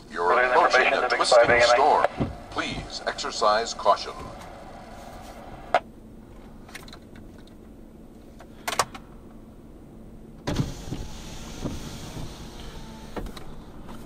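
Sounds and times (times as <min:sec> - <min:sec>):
vehicle cabin background noise: 0:00.0 - 0:14.0
rustling rumble: 0:00.2 - 0:08.4.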